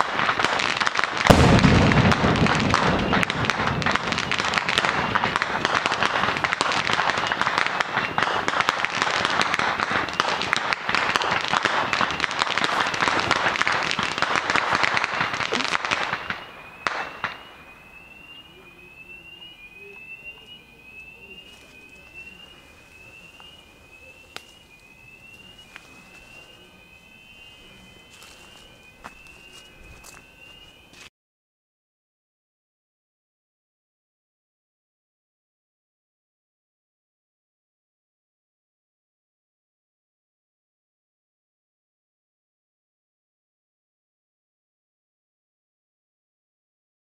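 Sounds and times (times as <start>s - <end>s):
fireworks crackling: 0.0s - 31.1s
electronic alarm rising sweep: 14.6s - 31.1s.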